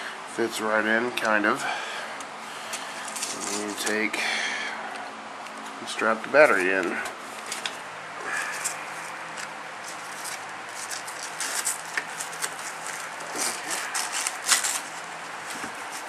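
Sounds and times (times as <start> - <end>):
light clicks and rustles of wiring: 2.2 - 3.9, 4.9 - 16.0.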